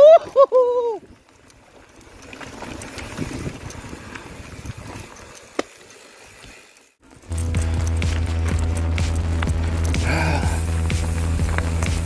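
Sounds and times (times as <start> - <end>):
bike tyres on dirt trail: 0.0 - 12.0
rushing wind: 2.5 - 5.3.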